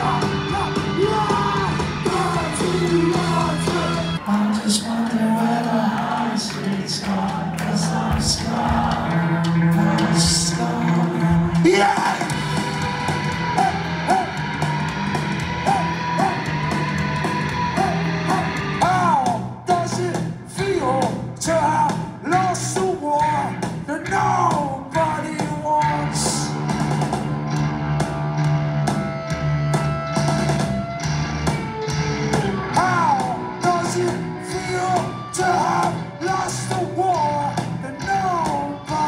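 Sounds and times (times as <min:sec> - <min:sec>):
drums keeping a steady beat: 0:00.0 - 0:04.2, 0:05.4 - 0:39.0
person singing lead vocal: 0:00.0 - 0:26.6, 0:32.6 - 0:39.0
bass guitar: 0:00.0 - 0:39.0
electric guitars: 0:00.0 - 0:39.0.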